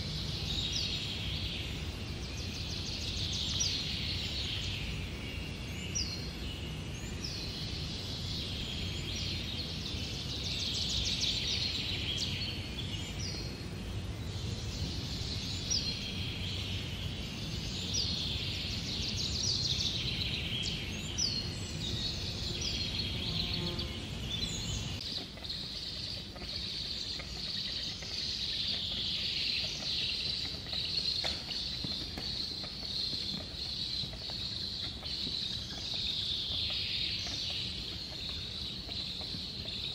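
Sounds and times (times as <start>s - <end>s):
chorus of high bird calls: 0.0s - 39.9s.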